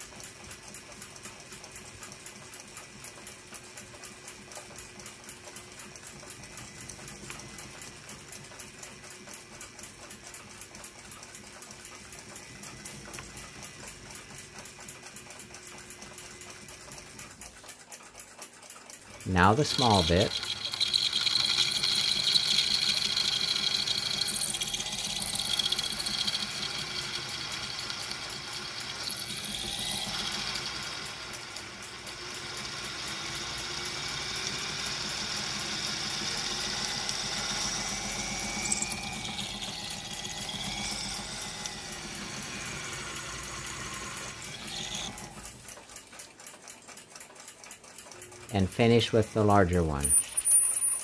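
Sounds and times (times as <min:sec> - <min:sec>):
drill bit scraping metal: 0:19.4 - 0:31.2, 0:36.2 - 0:45.5, 0:50.0 - 0:51.0
lathe machine hum: 0:19.4 - 0:45.7.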